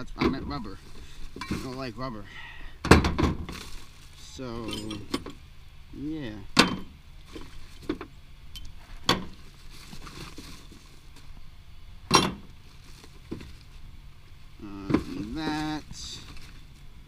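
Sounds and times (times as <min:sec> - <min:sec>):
scrap metal clinking: 0:03.5 - 0:05.4
metal clanks: 0:04.5 - 0:05.4, 0:12.1 - 0:12.5.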